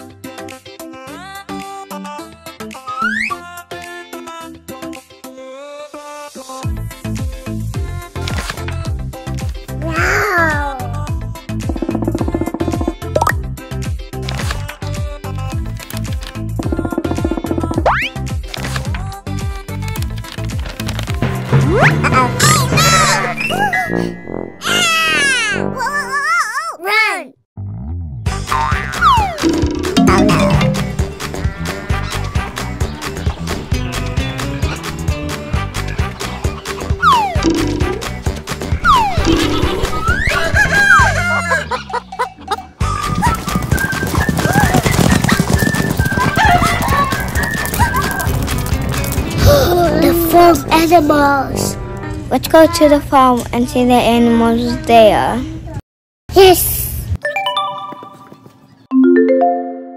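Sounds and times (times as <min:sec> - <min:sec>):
upbeat background music: 0:00.0 - 0:05.4, 0:06.0 - 0:25.8, 0:28.6 - 0:41.0, 0:58.9 - 0:59.9
background music with bass line: 0:28.2 - 0:41.0.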